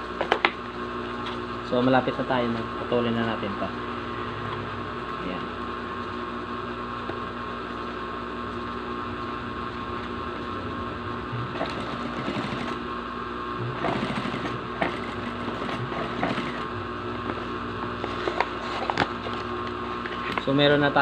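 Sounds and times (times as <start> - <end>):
sewing machine stitching: 11.4 - 12.8, 13.6 - 16.7.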